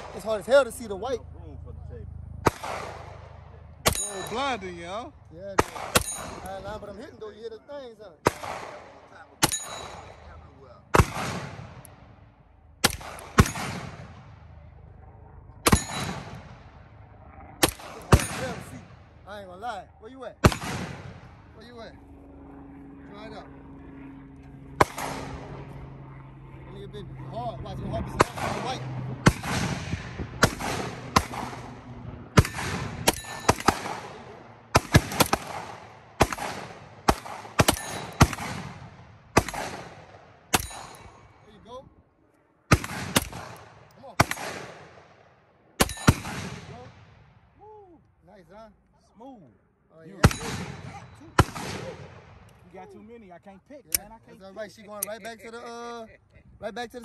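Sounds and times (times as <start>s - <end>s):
pistol shots with echo: 2.4s - 4.7s, 5.5s - 6.6s, 8.2s - 12.1s, 12.8s - 14.6s, 15.6s - 16.8s, 17.6s - 19.1s, 20.4s - 21.4s, 24.8s - 25.4s, 28.2s - 31.8s, 32.4s - 41.2s, 42.7s - 45.2s, 45.8s - 47.2s, 50.2s - 52.5s.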